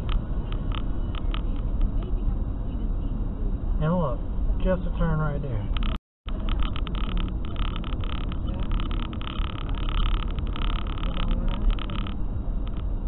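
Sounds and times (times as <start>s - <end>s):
crackle of small ticks: 0.0s - 2.2s, 5.7s - 13.0s
engine and tyre rumble: 0.0s - 13.0s.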